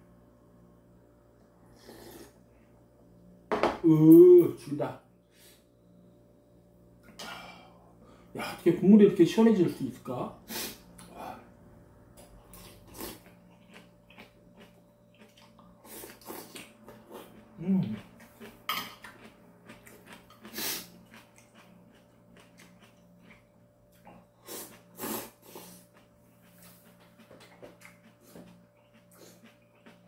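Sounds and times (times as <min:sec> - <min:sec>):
faint background hum: 0:00.0 - 0:30.0
breaths: 0:07.2 - 0:08.4.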